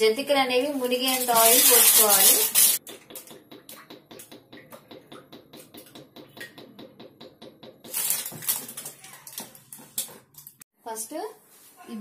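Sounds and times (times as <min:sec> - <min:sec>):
plastic can rustling: 0:00.8 - 0:02.8, 0:07.9 - 0:10.1.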